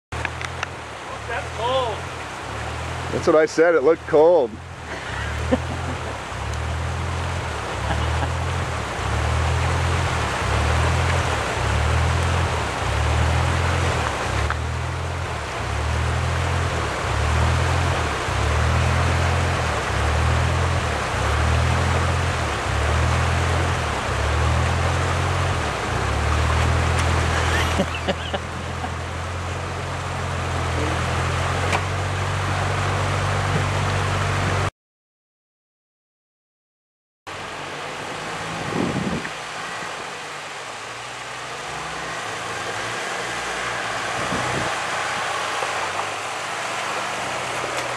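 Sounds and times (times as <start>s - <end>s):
vehicle engine idling: 0.1s - 34.6s
rushing river water: 0.1s - 34.7s, 37.3s - 47.9s.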